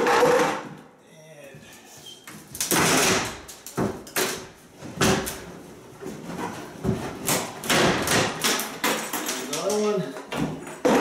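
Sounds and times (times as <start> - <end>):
wooden bangs and cracks: 2.6 - 11.0.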